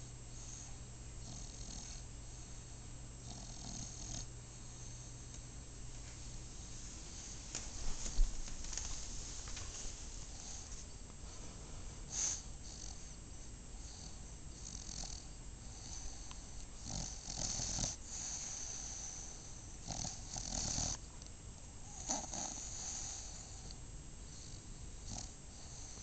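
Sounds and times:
dog snoring and snorting: 0.4s - 5.2s, 12.1s - 13.2s, 13.8s - 21.0s, 21.8s - 26.0s.

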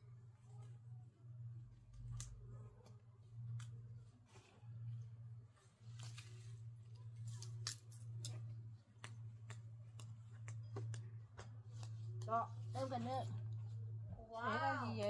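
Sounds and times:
steady low hum: 0.0s - 15.0s
stems snapping: 1.9s - 3.8s, 7.2s - 12.3s.

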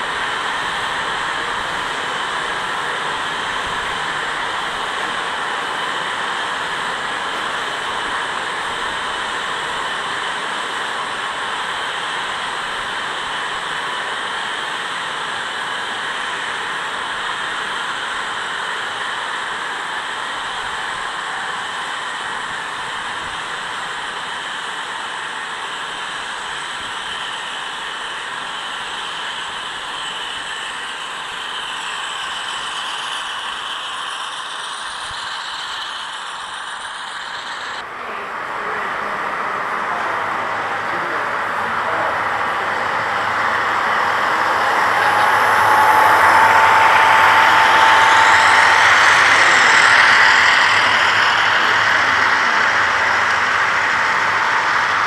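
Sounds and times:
thin steady whine: 0.0s - 55.0s
model train cars rolling: 26.3s - 55.0s.

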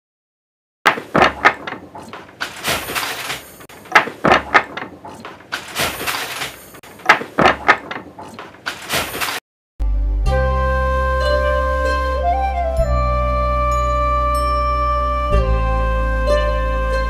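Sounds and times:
wooden handloom clacking: 0.9s - 9.4s.

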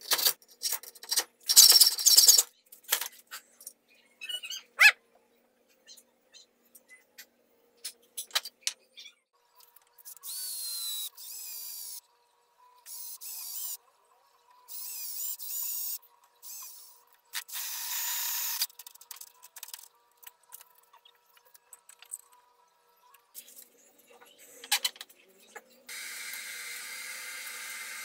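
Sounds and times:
electric drill whining: 25.9s - 28.0s.

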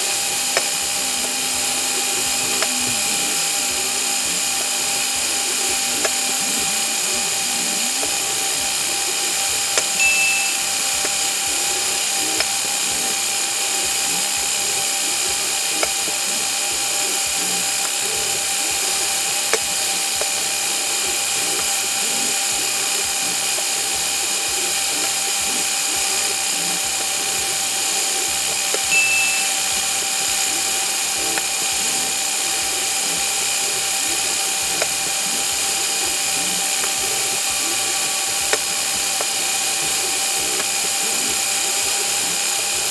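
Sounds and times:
small electric motors whining: 0.0s - 42.9s
brief high chirps: 28.9s - 29.6s.

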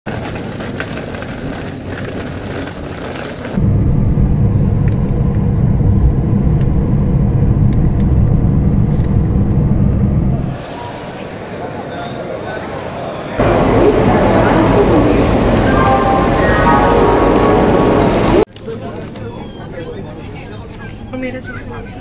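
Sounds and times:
suitcase wheels on pavement: 0.1s - 3.6s
car driving rumble: 3.4s - 10.6s, 13.4s - 18.5s.

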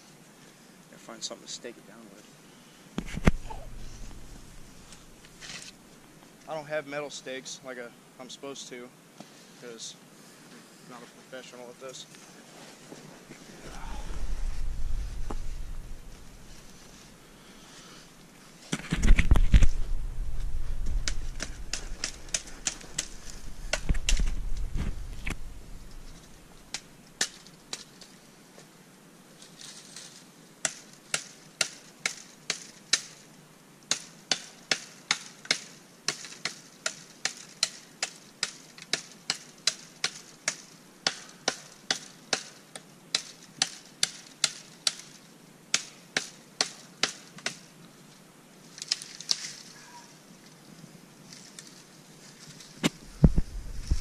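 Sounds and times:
low rumbling on microphone: 3.1s - 5.3s, 13.6s - 17.3s, 19.0s - 22.3s, 23.1s - 26.6s, 52.9s - 54.0s
blade chopping into tree: 20.9s - 25.4s.

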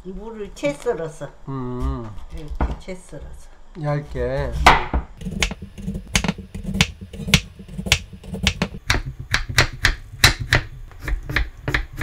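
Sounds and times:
knife chopping on wooden board: 4.5s - 12.0s.

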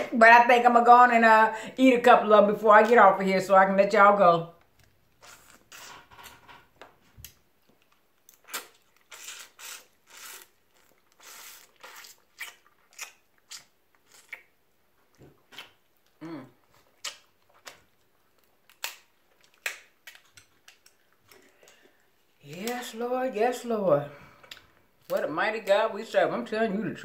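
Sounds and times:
wet chewing and lip smacking: 7.2s - 22.2s
crab shell cracking: 17.0s - 21.8s.

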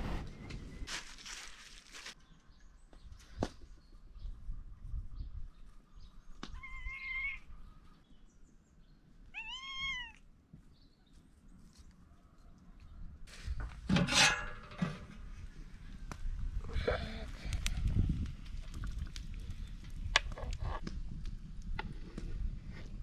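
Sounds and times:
cat meowing: 6.6s - 7.4s, 9.3s - 10.2s.

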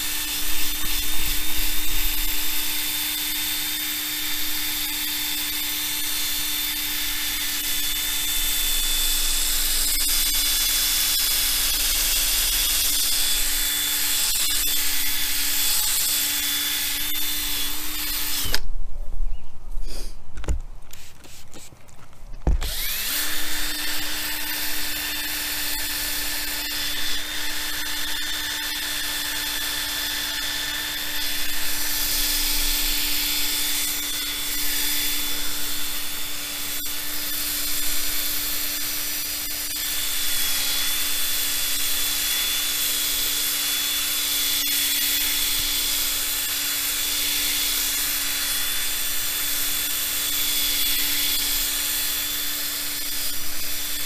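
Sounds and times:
cordless drill spinning polishing pad: 0.0s - 18.6s, 20.9s - 21.9s, 22.5s - 54.0s.

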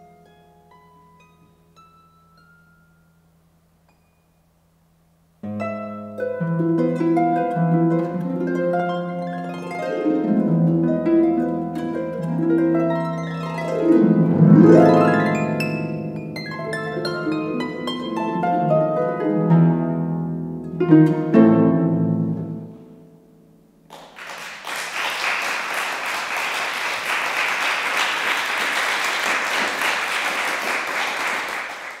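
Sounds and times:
harp playing chords: 5.4s - 23.6s
audience applause: 23.9s - 32.0s.

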